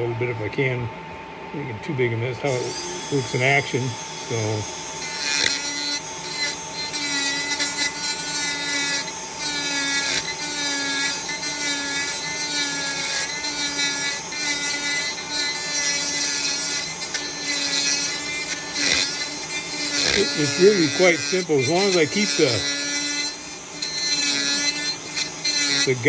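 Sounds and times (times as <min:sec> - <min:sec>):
rotary carver whining in wood: 0:02.4 - 0:26.0.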